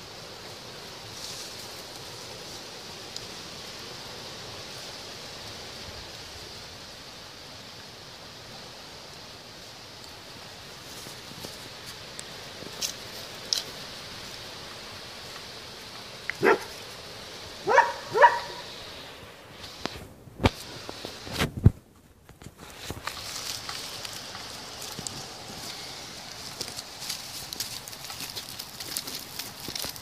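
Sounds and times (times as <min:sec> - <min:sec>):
dog barking: 0:16.4 - 0:16.7, 0:17.6 - 0:18.7.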